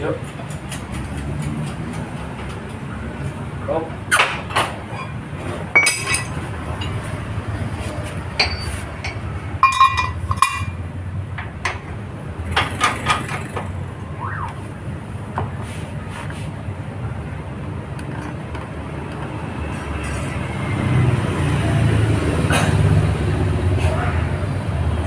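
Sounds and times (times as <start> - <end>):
metal parts clanking: 4.5 - 7.0.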